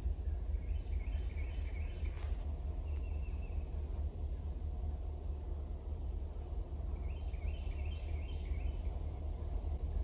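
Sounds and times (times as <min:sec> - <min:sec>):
birds chirping: 0:00.0 - 0:10.0
steady low rumble: 0:00.0 - 0:10.0.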